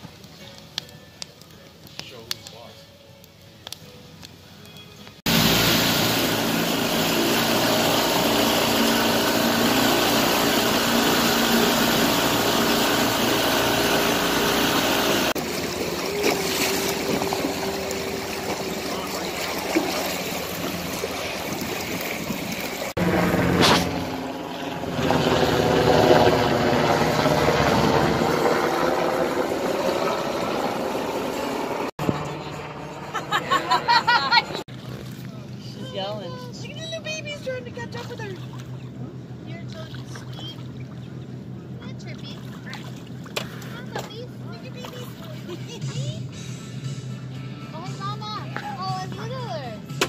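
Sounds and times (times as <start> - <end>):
wind and water rushing: 5.3 - 31.8
helicopter flying overhead: 5.3 - 49.9
motorboat engine running: 5.3 - 50.0.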